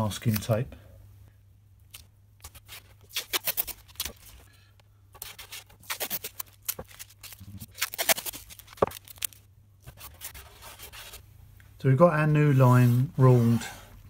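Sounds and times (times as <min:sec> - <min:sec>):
masking tape ripping off roll: 0:01.9 - 0:04.4, 0:05.2 - 0:11.0.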